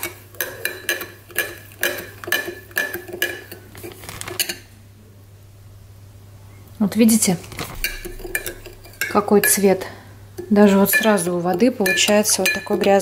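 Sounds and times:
spoon clinking against glass: 0:07.8 - 0:09.6, 0:10.8 - 0:13.0.

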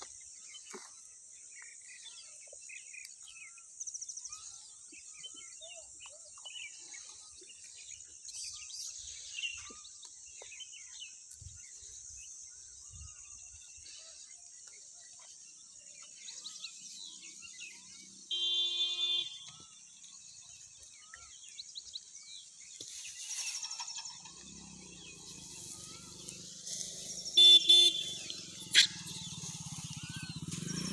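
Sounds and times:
bird chirps: 0:00.0 - 0:30.9
motor vehicle approaching: 0:15.5 - 0:18.3, 0:23.4 - 0:30.9
vehicle horn: 0:18.2 - 0:19.6, 0:27.2 - 0:28.7
stuttering horn blast: 0:26.8 - 0:30.9.

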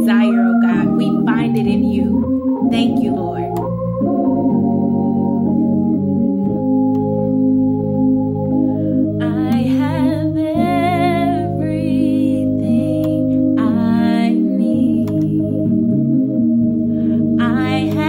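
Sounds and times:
person speaking: 0:00.0 - 0:03.7
organ playing slow chords: 0:00.0 - 0:18.0.

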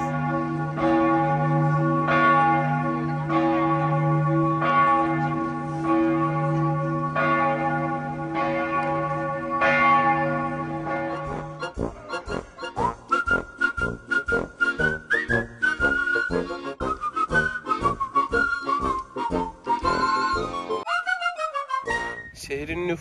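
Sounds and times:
church bells ringing: 0:00.0 - 0:12.8.

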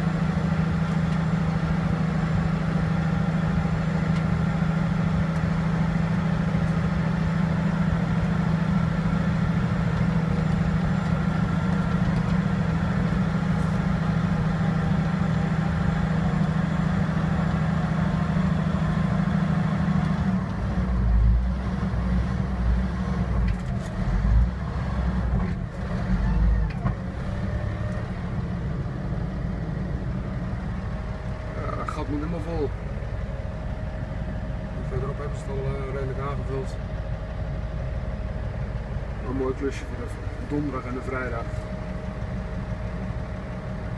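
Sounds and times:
bulldozer diesel engine drone: 0:00.0 - 0:43.9.

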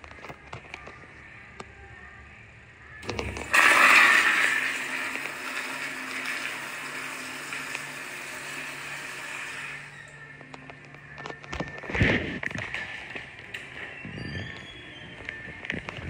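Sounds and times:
toilet flushing: 0:03.0 - 0:10.2.

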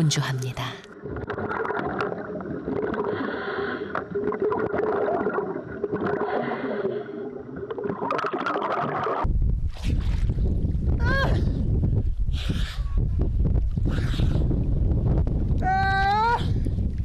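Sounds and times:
underwater gurgling: 0:00.9 - 0:09.3.

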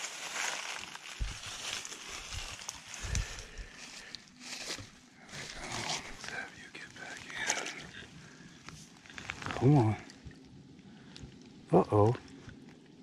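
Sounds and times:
rustling through grass and brush: 0:00.0 - 0:10.0
dull thumps: 0:01.1 - 0:01.7.

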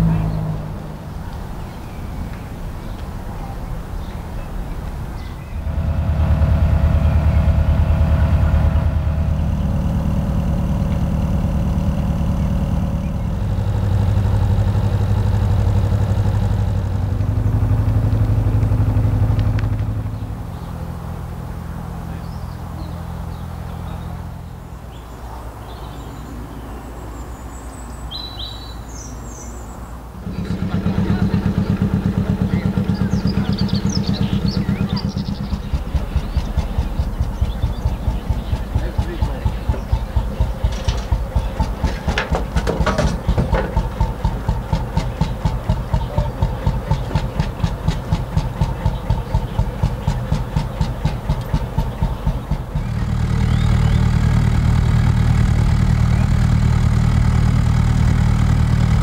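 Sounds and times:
diesel boat engine running: 0:00.0 - 0:26.6, 0:30.0 - 0:59.0
birds chirping: 0:00.0 - 0:59.0.

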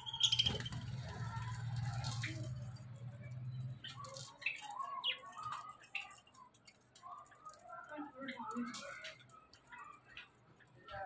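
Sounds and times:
budgerigars chirping: 0:00.0 - 0:01.0.

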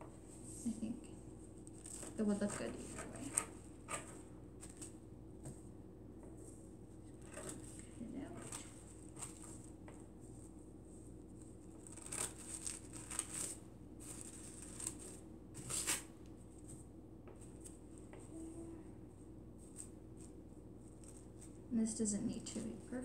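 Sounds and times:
scissors snipping tissue paper: 0:11.6 - 0:16.1.

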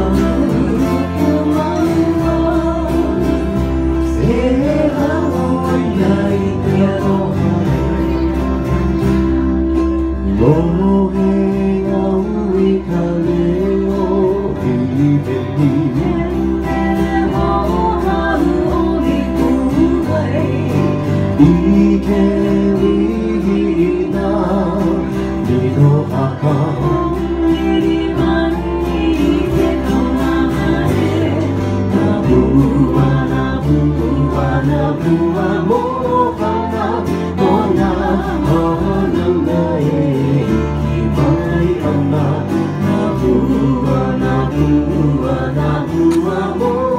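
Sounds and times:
acoustic guitars and ukuleles: 0:00.0 - 0:46.9
low bass notes: 0:00.0 - 0:46.9
person singing: 0:00.0 - 0:46.9.

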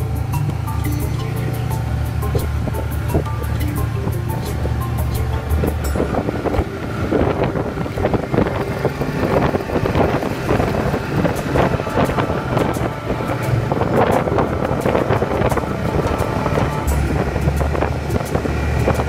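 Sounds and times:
snowmobile engine running: 0:00.0 - 0:19.0
wind buffeting microphone: 0:00.0 - 0:19.0.

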